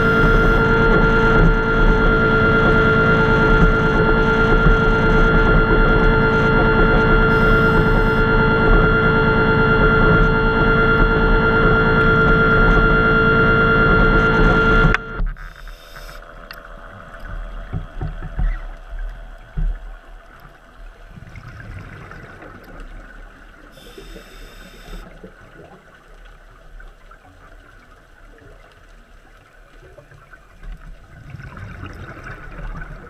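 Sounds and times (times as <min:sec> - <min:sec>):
regulator bubbles gurgling: 0:00.0 - 0:33.0
hissing inhale through regulator: 0:23.8 - 0:25.0.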